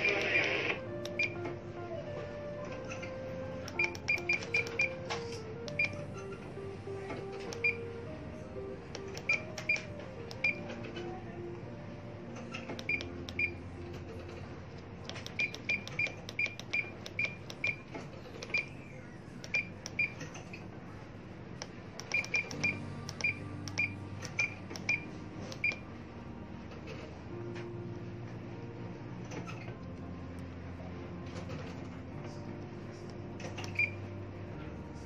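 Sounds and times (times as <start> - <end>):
low steady hum: 0.0 - 35.0
short high key beeps: 3.7 - 5.0, 12.8 - 13.6, 15.3 - 17.8, 22.1 - 25.8, 33.6 - 34.0.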